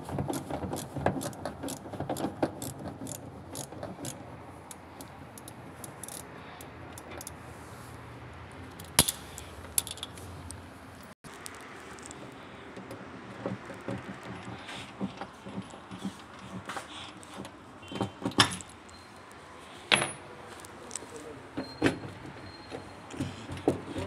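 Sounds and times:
ratchet wrench clicking: 2.6s - 7.4s.

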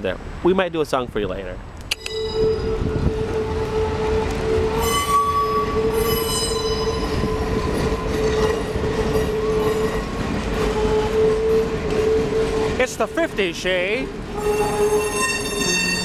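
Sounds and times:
train cars rumbling on rails: 0.0s - 16.0s
high wheel squeal: 2.0s - 3.9s, 4.6s - 13.0s, 14.3s - 16.0s.

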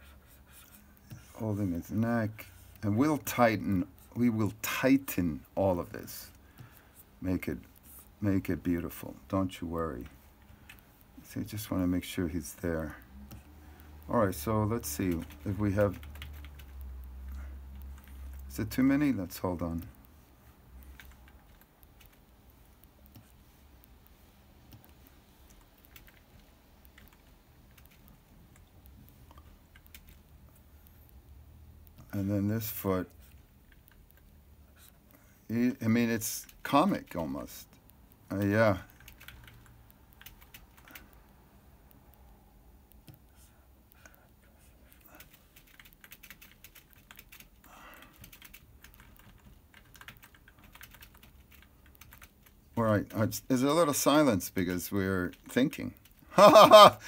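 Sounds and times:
soft rustle: 0.0s - 31.9s
low steady hum: 0.0s - 57.0s
computer keyboard clicks: 14.5s - 20.0s, 20.8s - 22.2s, 24.7s - 30.4s, 38.4s - 41.2s, 44.9s - 52.6s.

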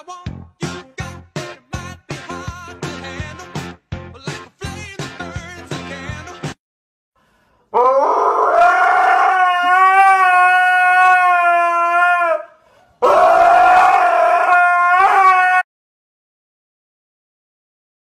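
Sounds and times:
dog howling: 7.8s - 15.7s.

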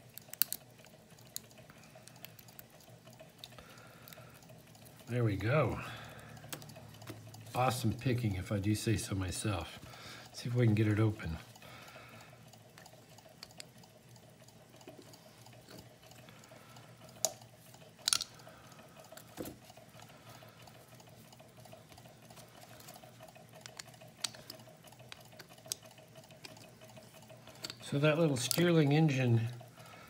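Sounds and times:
metal clicks and scrapes: 0.0s - 4.2s, 17.1s - 18.4s
faint steady engine hum: 0.7s - 30.0s.

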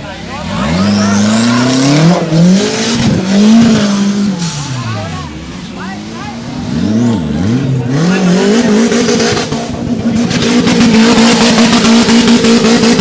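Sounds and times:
buggy engine revving hard: 0.0s - 13.0s
spinning tyres spraying mud: 8.1s - 13.0s.

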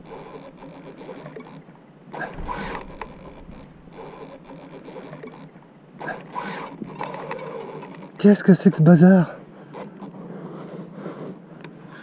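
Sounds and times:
fishing reel gears whirring: 0.0s - 8.5s, 9.7s - 10.2s.

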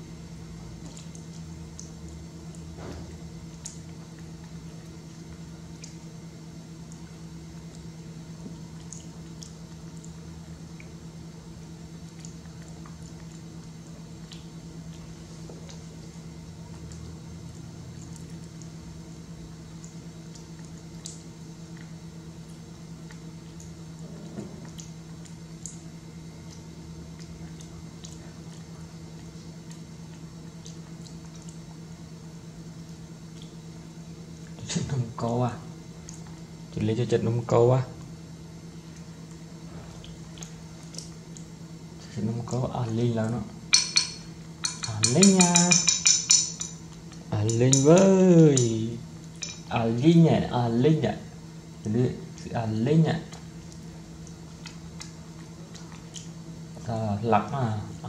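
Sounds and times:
low electrical hum: 0.0s - 58.0s
monkey chewing and lip-smacking: 53.3s - 56.8s.

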